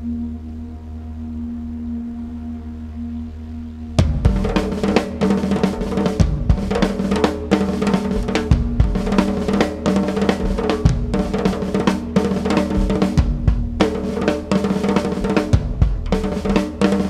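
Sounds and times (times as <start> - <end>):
drone of held tones: 0.0 - 17.0
drum kit solo: 4.0 - 17.0.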